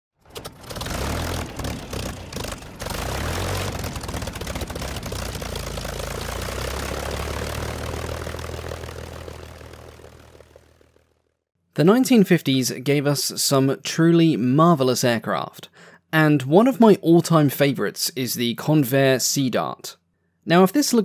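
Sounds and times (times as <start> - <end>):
propeller aircraft engine drone: 0.2 - 11.4.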